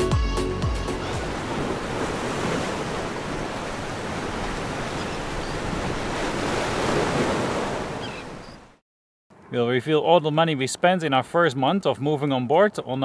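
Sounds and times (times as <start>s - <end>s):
waves breaking on beach: 0.9s - 8.8s.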